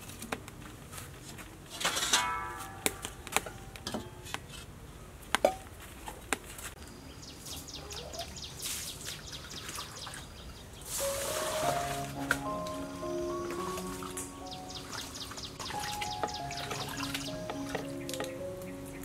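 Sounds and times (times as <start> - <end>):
water pouring from scoop: 10.9 - 12.4.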